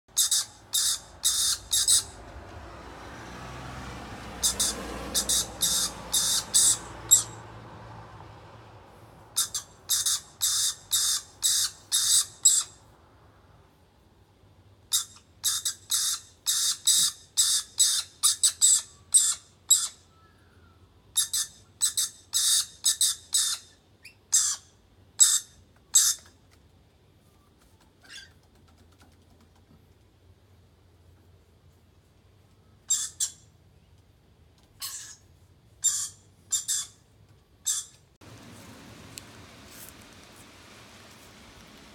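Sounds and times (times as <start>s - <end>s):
lorikeets giving scratchy calls: 0.1s - 2.2s, 4.4s - 7.4s, 9.4s - 12.8s, 14.9s - 20.0s, 21.2s - 26.2s, 32.9s - 33.4s, 35.8s - 37.0s, 37.6s - 38.0s
low rushing noise: 38.2s - 41.9s.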